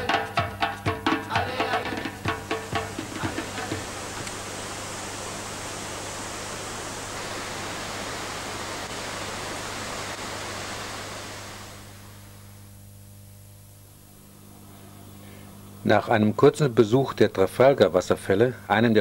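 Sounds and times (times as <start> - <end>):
waterfall rushing: 2.3 - 12.2.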